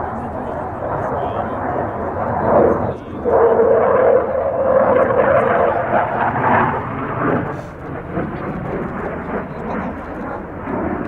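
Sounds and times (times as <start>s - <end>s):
jet engine roar: 0.0s - 11.0s.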